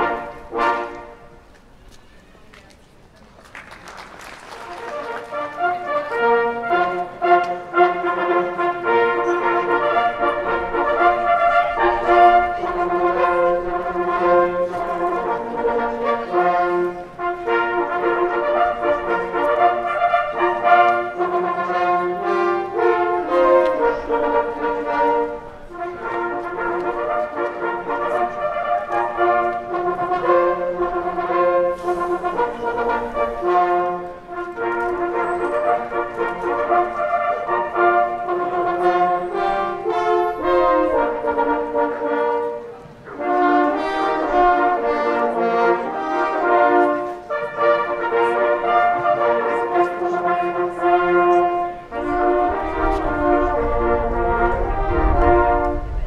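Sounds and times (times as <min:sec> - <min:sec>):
hunting horn ensemble playing chords: 0:00.0 - 0:01.6, 0:04.2 - 0:56.0.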